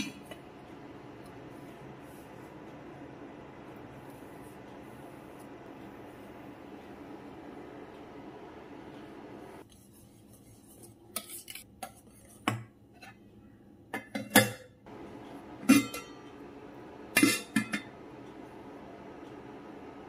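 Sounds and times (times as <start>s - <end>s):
metal whisk against enamel: 9.6s - 12.5s.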